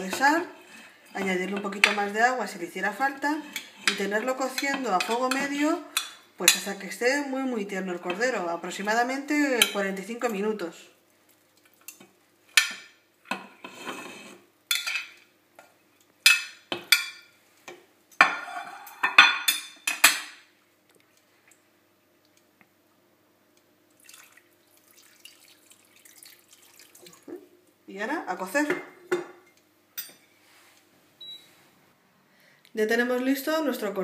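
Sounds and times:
water poured into pan: 0:24.0 - 0:27.2.

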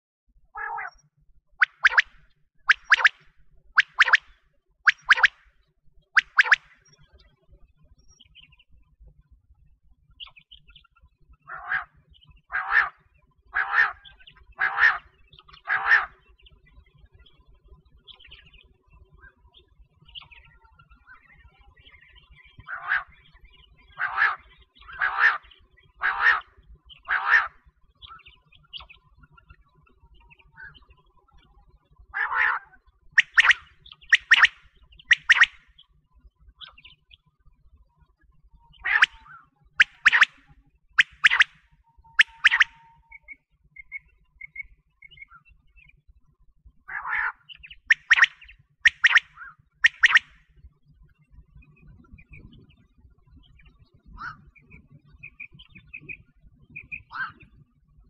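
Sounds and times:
quail raspy calls: 0:00.6 - 0:01.0, 0:01.6 - 0:02.1, 0:02.7 - 0:03.2, 0:03.8 - 0:04.3, 0:04.9 - 0:05.3, 0:06.2 - 0:06.7, 0:11.5 - 0:13.0, 0:13.6 - 0:16.2, 0:22.6 - 0:23.2, 0:24.0 - 0:27.6, 0:32.2 - 0:35.6, 0:38.8 - 0:40.4, 0:41.0 - 0:41.6, 0:42.2 - 0:42.9, 0:46.9 - 0:50.3, 0:56.9 - 0:57.4
faint chirps: 0:00.8 - 0:03.2, 0:03.8 - 0:05.4, 0:06.2 - 0:07.0, 0:33.2 - 0:35.9, 0:38.6 - 0:40.4, 0:41.0 - 0:45.3, 0:47.6 - 0:50.3.

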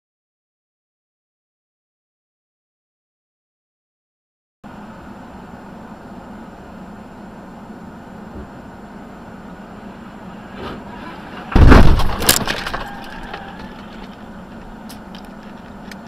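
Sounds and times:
traffic hum: 0:04.6 - 0:16.0
debris clattering: 0:10.7 - 0:14.1
loud collision bang: 0:11.4 - 0:13.0
glass breaking: 0:11.5 - 0:13.0.

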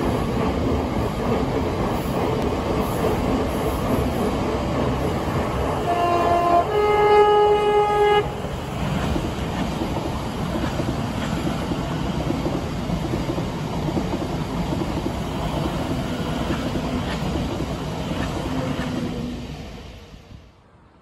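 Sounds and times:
electric trains rumbling past: 0:00.0 - 0:21.0
two-note train horn: 0:05.8 - 0:08.4.

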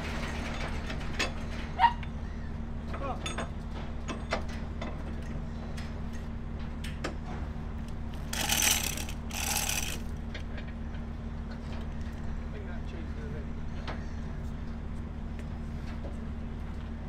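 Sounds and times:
low machinery hum: 0:03.7 - 0:17.0
metallic clicks and chain rattle: 0:08.2 - 0:10.1
short noisy bursts: 0:08.3 - 0:10.0.

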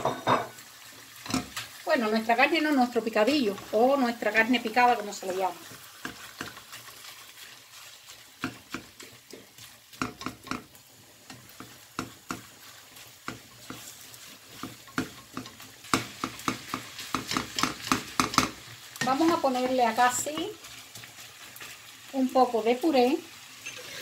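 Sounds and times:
faint oil sizzle: 0:00.0 - 0:24.0
spatula scraping frying pan: 0:04.7 - 0:21.9, 0:23.6 - 0:24.0.

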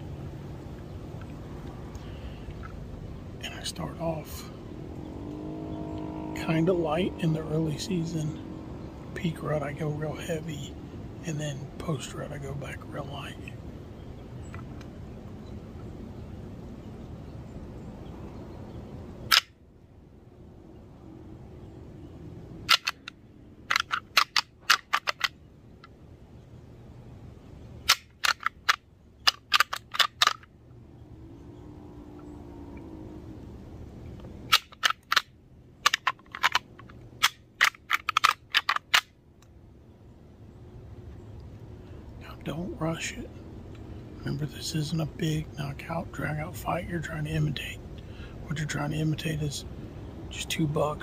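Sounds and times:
deer rattling call clacks: 0:22.6 - 0:26.0, 0:27.8 - 0:30.5, 0:34.5 - 0:39.1
low rumbling noise: 0:30.4 - 0:34.6.

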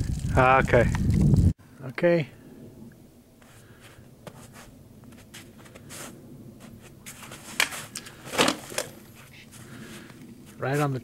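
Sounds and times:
faint rustling and shuffling: 0:03.4 - 0:11.0.

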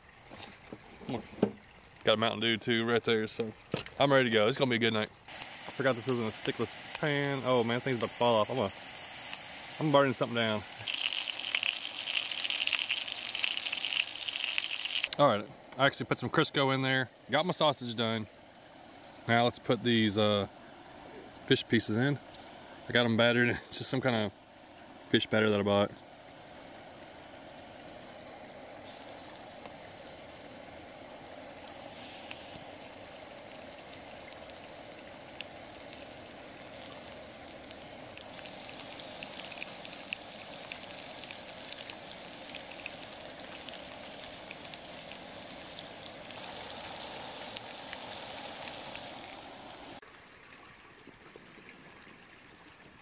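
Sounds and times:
fish deep-frying with crackling: 0:05.3 - 0:15.2, 0:28.8 - 0:50.0.

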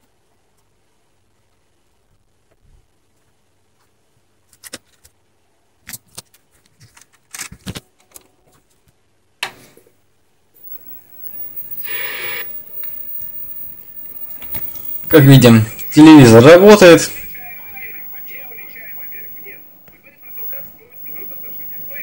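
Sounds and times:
high-pitched whine with hiss: 0:10.6 - 0:22.0.

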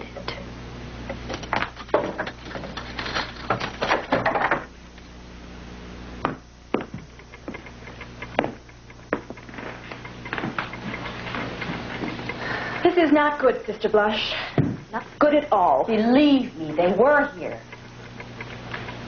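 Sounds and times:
knocks and taps: 0:06.2 - 0:12.4
footsteps: 0:06.8 - 0:15.3.

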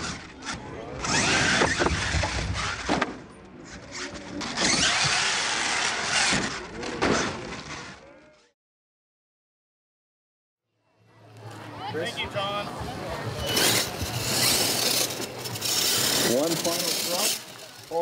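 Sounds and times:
toy truck motor whining: 0:00.0 - 0:02.9, 0:03.6 - 0:08.0, 0:13.3 - 0:18.0.

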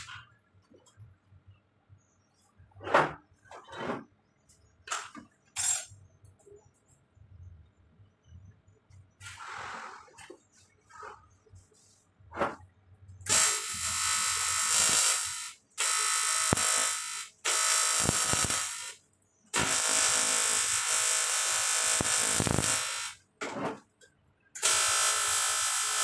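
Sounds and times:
welding arc buzzing: 0:13.2 - 0:23.2, 0:24.6 - 0:26.0.

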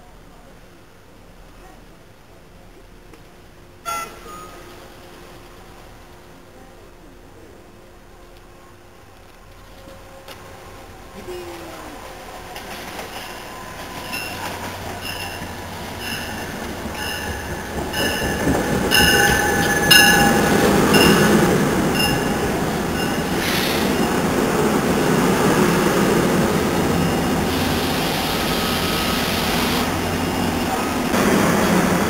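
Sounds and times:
train rumble: 0:00.4 - 0:32.0
warning bell ringing: 0:14.1 - 0:23.4
train wheel squeal: 0:22.0 - 0:24.2.

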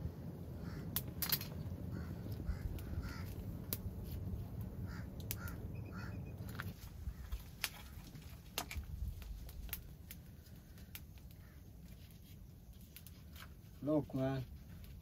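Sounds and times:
low rumble: 0:00.0 - 0:07.3
crows cawing: 0:00.6 - 0:01.0, 0:01.8 - 0:03.5, 0:04.8 - 0:08.2, 0:10.6 - 0:11.7
sharp clicks and snaps: 0:05.2 - 0:05.6.

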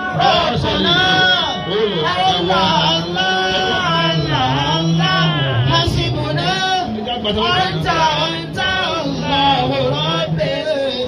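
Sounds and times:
low held drone note: 0:00.0 - 0:07.7
men singing devotional chant: 0:00.0 - 0:11.0.

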